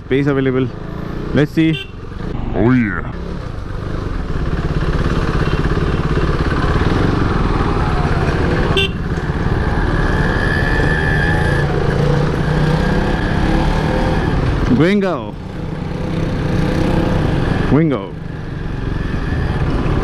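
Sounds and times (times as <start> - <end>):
motorcycle engine running: 0.0 - 10.2
horn toot: 8.7 - 9.1.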